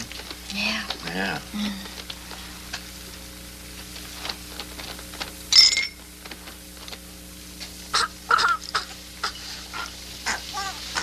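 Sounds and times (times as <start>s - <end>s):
steady low hum: 0.0s - 11.0s
glasses clinking: 5.5s - 6.0s.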